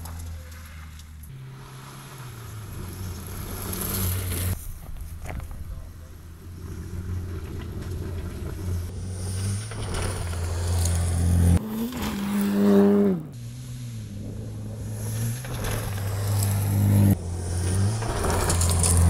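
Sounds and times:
tyres rushing over dirt: 0:14.8 - 0:19.0.

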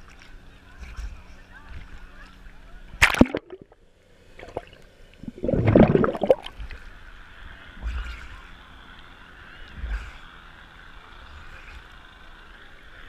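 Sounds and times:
water splashing: 0:03.0 - 0:06.8
water sloshing and gurgling: 0:03.0 - 0:06.9.

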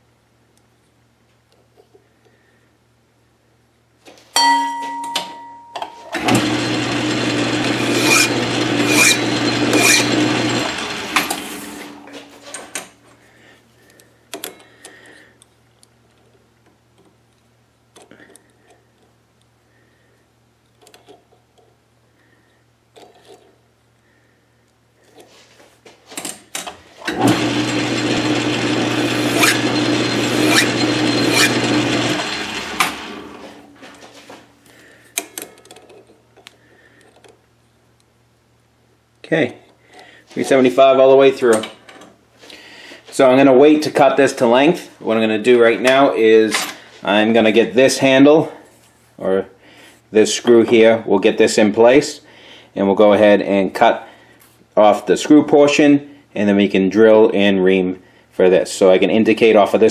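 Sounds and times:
file scraping spinning metal: 0:06.2 - 0:12.0, 0:27.1 - 0:33.7
lathe motor hum: 0:06.2 - 0:12.0, 0:27.1 - 0:33.7.

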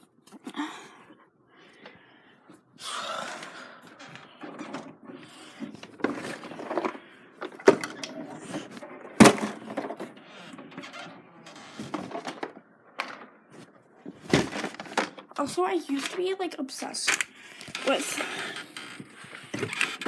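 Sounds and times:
household items rustling and bumping: 0:03.9 - 0:16.4.

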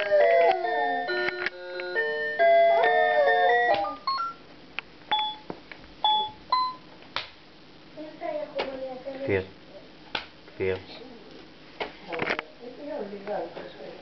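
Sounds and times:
toy keyboard beeping tune: 0:00.0 - 0:04.4, 0:05.1 - 0:06.8.

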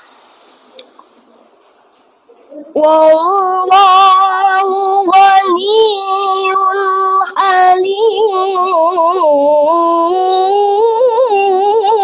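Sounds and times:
child chanting melodically: 0:02.5 - 0:12.0.

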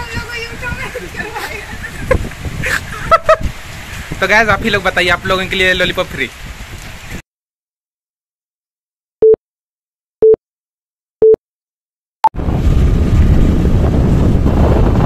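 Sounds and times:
wind buffeting microphone: 0:00.0 - 0:07.2, 0:12.4 - 0:15.0.

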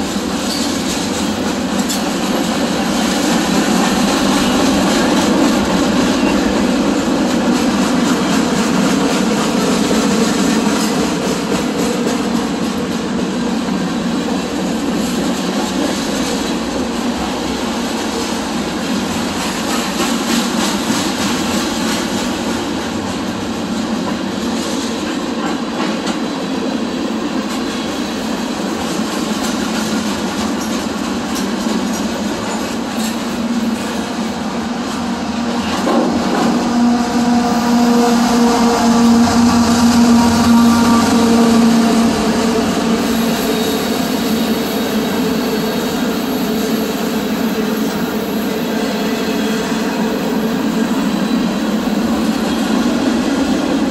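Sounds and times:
freight cars rumbling on rails: 0:00.0 - 0:53.9.

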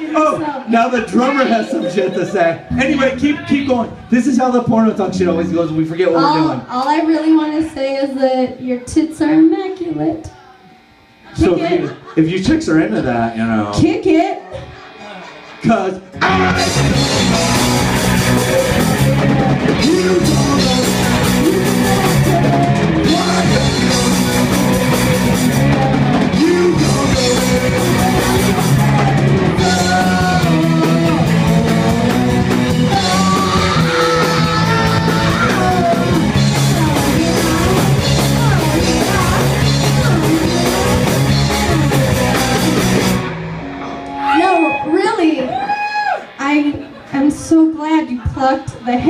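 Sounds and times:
punk rock band playing: 0:00.0 - 0:08.4, 0:13.8 - 0:49.0
sung vocals: 0:16.2 - 0:44.0.

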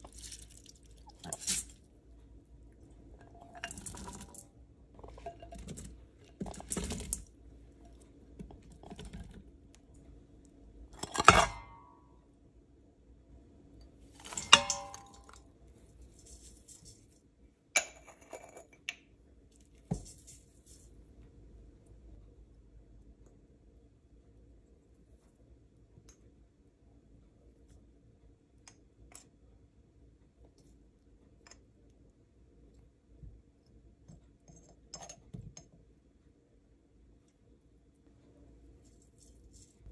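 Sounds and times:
food rustling: 0:00.0 - 0:01.9
bowl clinking against metal pot: 0:14.2 - 0:15.4.

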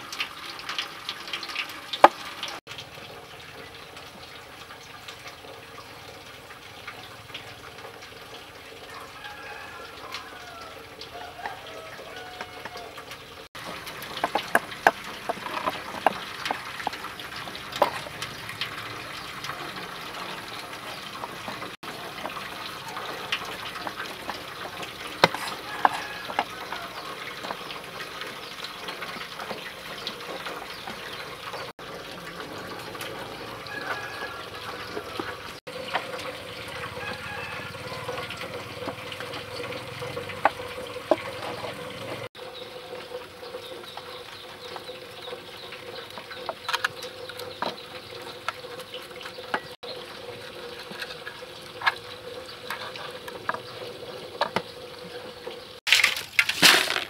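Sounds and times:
cleaver scraping fish scales: 0:25.0 - 0:27.6.

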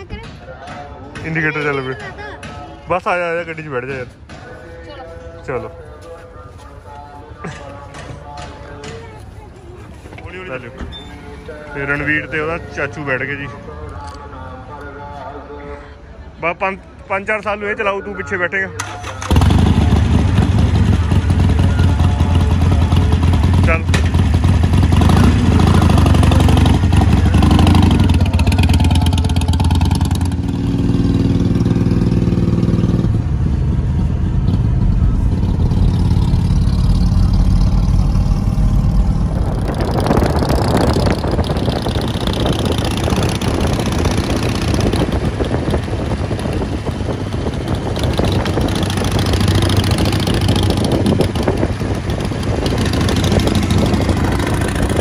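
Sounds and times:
road and wind rush: 0:01.2 - 0:55.0
motorcycle engine pulling away: 0:18.8 - 0:55.0.

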